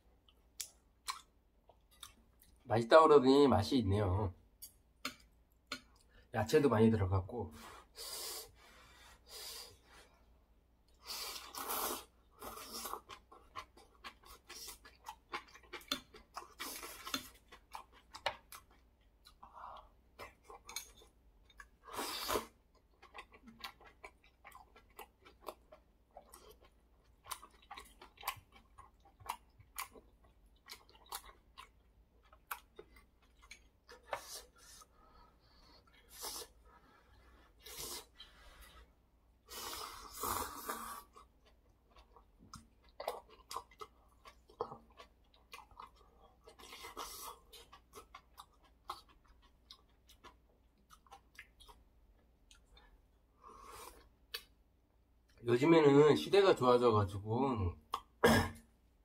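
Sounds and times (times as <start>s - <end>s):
wet chewing: 11.0s - 34.9s, 39.5s - 53.0s.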